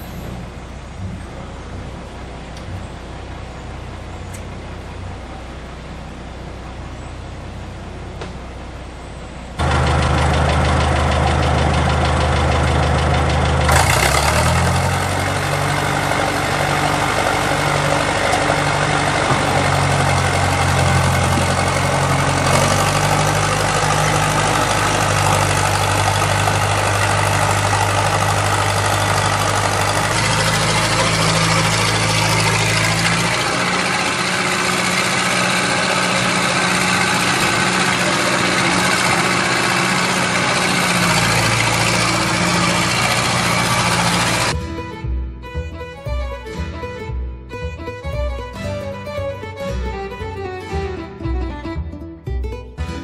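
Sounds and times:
heavy diesel engines running: 0.0 - 53.0.

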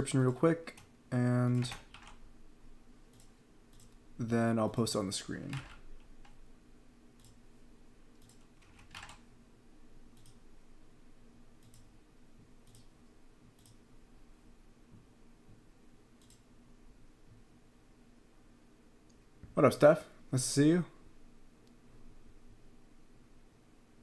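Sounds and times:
low steady hum: 0.0 - 24.0
keyboard and mouse clicks: 1.5 - 2.2, 3.1 - 4.0, 7.2 - 7.4, 8.2 - 9.2, 10.2 - 10.4, 11.6 - 11.9, 12.6 - 12.9, 13.5 - 13.8, 16.2 - 16.4.

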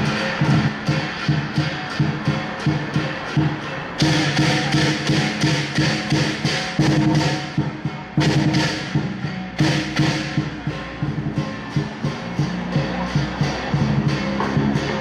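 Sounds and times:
big drum beating: 0.0 - 15.0
cymbals clashing: 0.0 - 15.0.

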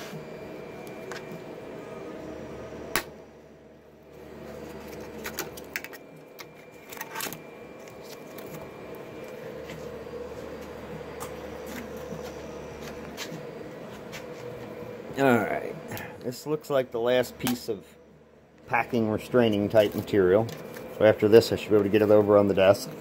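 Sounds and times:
steady hum: 0.0 - 23.0.

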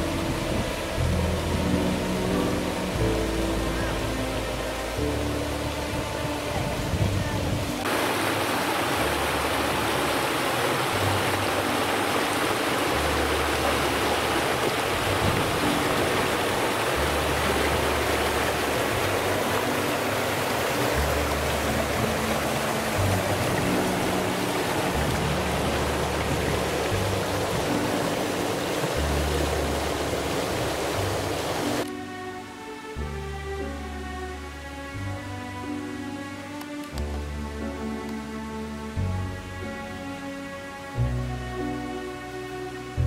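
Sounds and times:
river rushing over cascade: 0.0 - 32.6
soft background music: 0.0 - 43.0.

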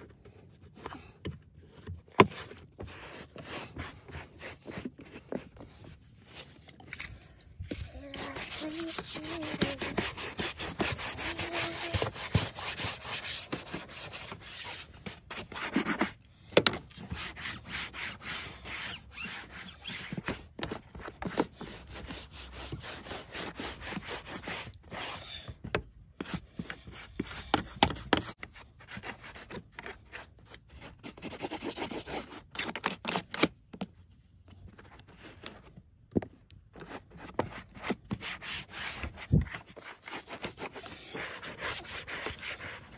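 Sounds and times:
cloth scrubbing plastic trim: 6.4 - 16.1.

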